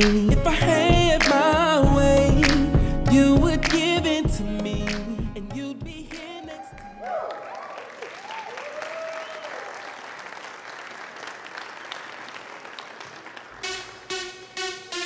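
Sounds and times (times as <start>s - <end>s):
electronic dance track: 0.0s - 6.4s, 13.4s - 15.0s
audience applauding and cheering: 6.2s - 14.1s
high whoops: 6.3s - 10.0s.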